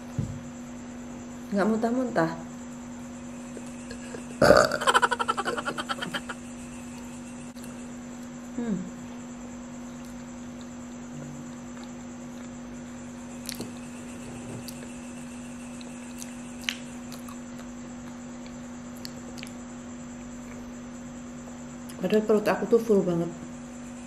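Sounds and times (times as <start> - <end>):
electrical hum: 0.0 - 24.0.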